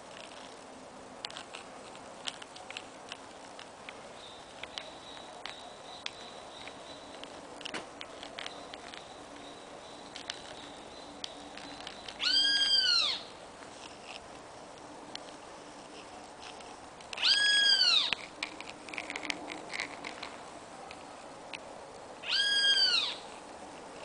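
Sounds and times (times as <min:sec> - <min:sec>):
cat meowing: 0:17.2 - 0:18.1, 0:22.2 - 0:23.2.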